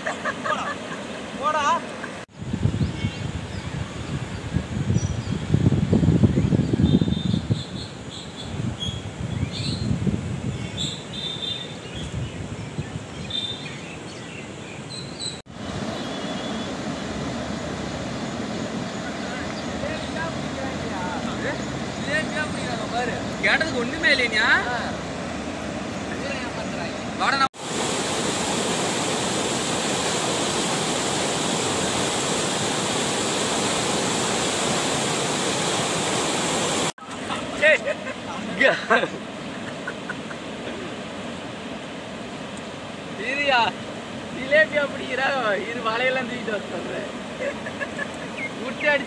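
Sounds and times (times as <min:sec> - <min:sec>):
floodwater rushing: 0:00.0 - 0:04.8, 0:15.5 - 0:49.0
wind rumbling on microphone: 0:02.3 - 0:13.4
birds chirping: 0:06.2 - 0:27.5, 0:46.0 - 0:49.0.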